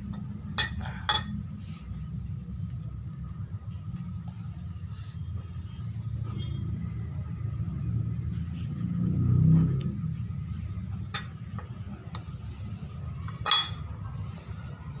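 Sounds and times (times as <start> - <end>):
metal tool clinking on tile: 11.0 - 11.4, 13.3 - 13.9.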